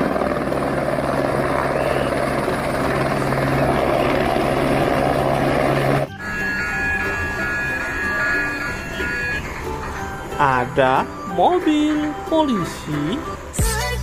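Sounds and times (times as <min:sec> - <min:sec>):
helicopter rotor chop: 0:00.0 - 0:11.1.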